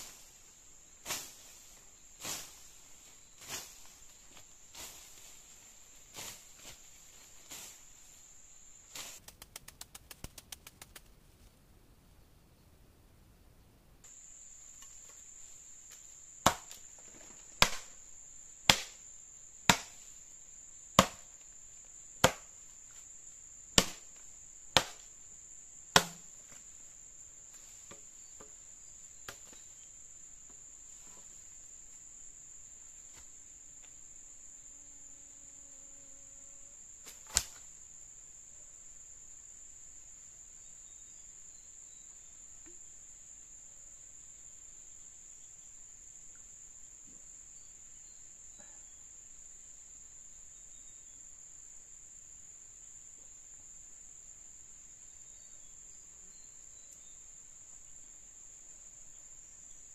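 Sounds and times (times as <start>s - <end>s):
chopping blows on wood: 16.4s - 16.8s, 17.6s - 17.9s, 18.7s - 19.0s, 19.7s - 20.0s, 21.0s - 21.3s, 22.2s - 22.5s, 23.8s - 24.0s, 24.8s - 25.0s, 25.9s - 26.3s.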